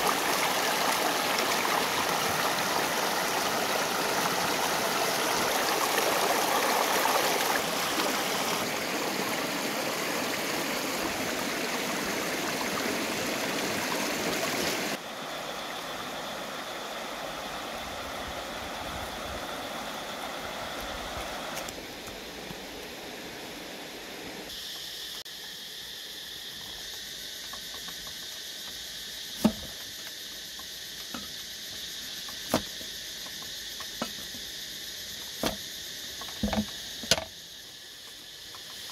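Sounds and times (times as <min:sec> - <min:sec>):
stream rushing over stones: 0:00.0 - 0:24.5
insect chirring: 0:00.0 - 0:38.9.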